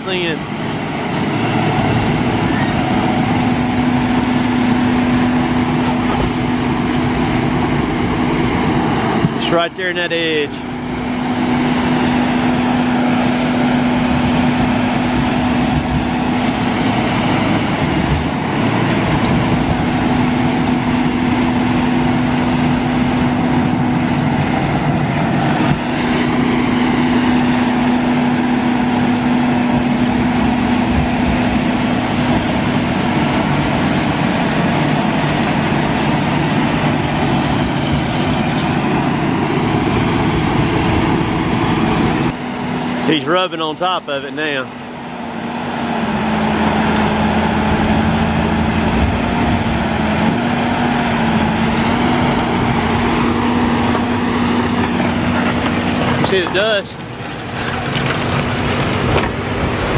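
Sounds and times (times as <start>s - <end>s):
bulldozer diesel engine under load: 0.0s - 59.9s.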